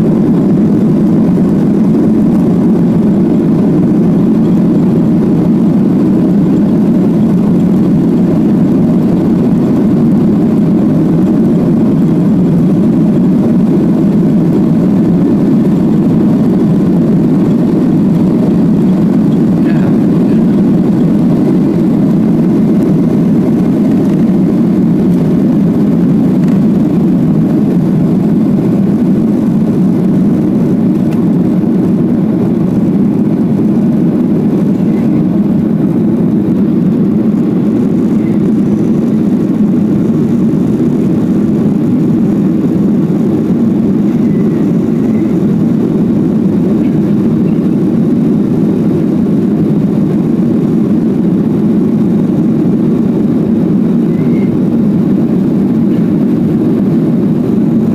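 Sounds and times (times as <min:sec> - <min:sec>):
jet engines rumbling in cabin: 0:00.0 - 0:57.9.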